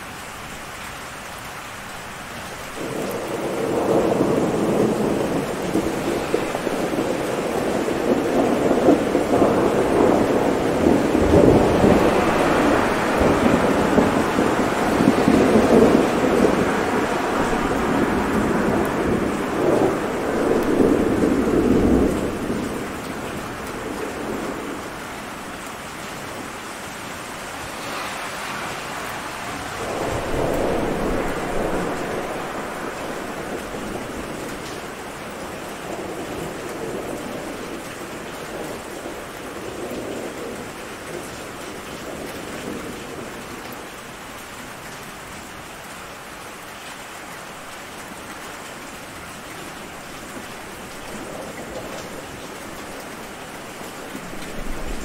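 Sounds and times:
steady rain: 0.0 - 55.0
rolling thunder: 2.8 - 25.0, 27.4 - 40.7, 51.0 - 55.0.

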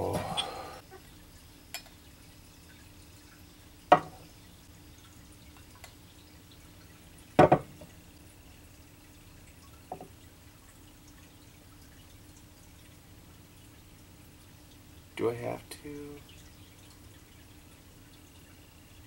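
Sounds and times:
liquid trickling into glasses: 0.0 - 19.0
glassware knocking: 3.9 - 4.2, 7.4 - 7.7.

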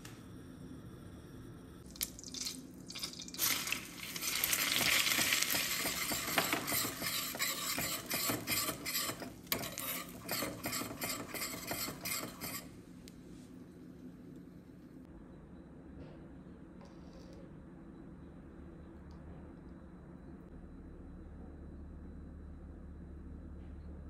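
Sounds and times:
pepper sizzling in butter: 1.9 - 12.2
spoon scraping a pan: 4.2 - 12.7.

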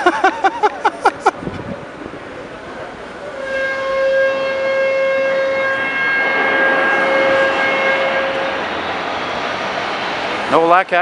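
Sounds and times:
street traffic noise: 0.0 - 11.0
blasting warning horn: 3.3 - 9.0.

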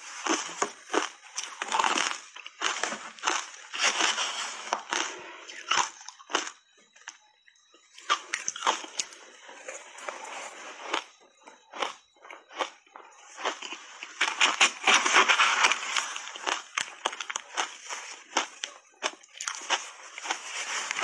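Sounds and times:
crunching and chewing ice: 0.0 - 21.0.

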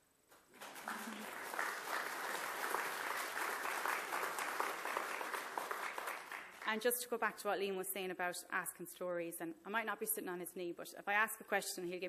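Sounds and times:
audience applauding: 0.5 - 6.7.

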